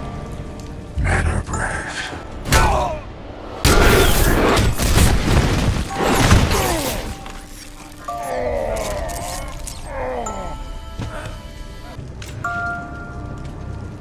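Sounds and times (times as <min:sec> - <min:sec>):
body smashing through wall: 0:03.7 - 0:07.1.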